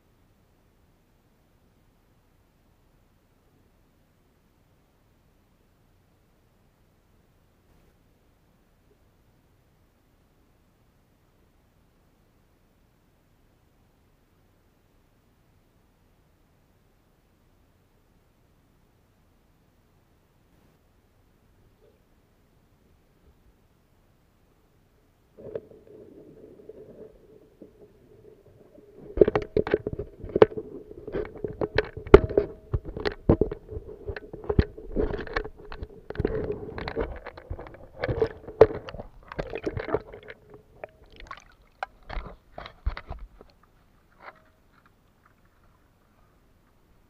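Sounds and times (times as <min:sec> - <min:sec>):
steady underwater hum: 0:00.0 - 0:47.0
irregular clicks and knocks: 0:26.8 - 0:46.8.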